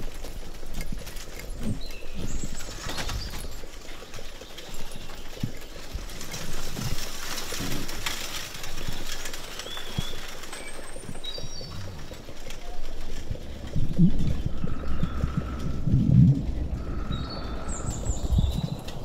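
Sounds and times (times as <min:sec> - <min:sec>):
carriage rumbling: 0:00.0 - 0:19.0
hoof clops: 0:00.0 - 0:19.0
bird chirps: 0:16.8 - 0:19.0.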